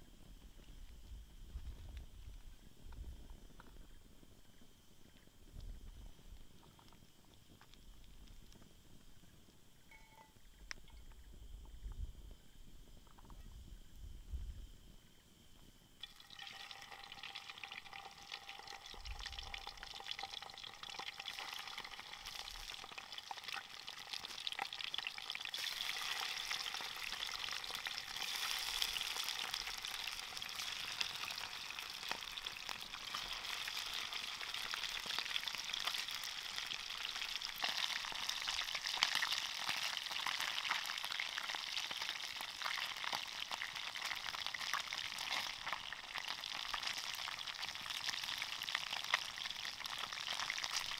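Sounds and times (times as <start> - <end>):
fish sizzling in hot oil: 16.0 - 50.9.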